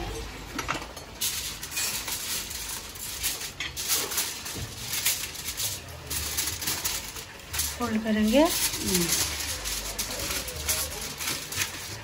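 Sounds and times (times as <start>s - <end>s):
aluminium foil crinkling: 1.0s - 12.0s.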